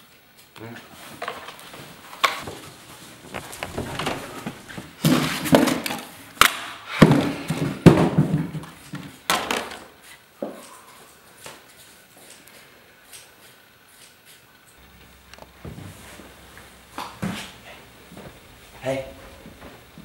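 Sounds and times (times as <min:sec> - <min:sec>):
objects thunking and knocking: 0:02.4 - 0:06.0, 0:07.0 - 0:09.9.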